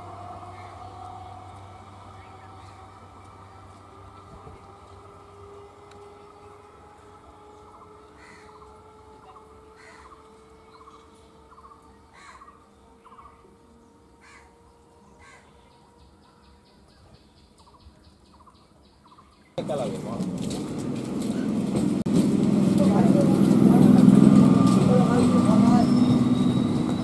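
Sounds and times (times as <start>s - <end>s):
distant electric train whine: 0.0s - 16.9s, 19.6s - 27.0s
birds calling: 0.5s - 1.1s, 7.7s - 22.0s, 23.0s - 27.0s.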